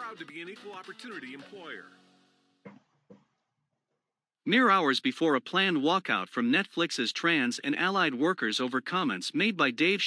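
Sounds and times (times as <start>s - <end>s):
background music chord: 0.0s - 2.5s.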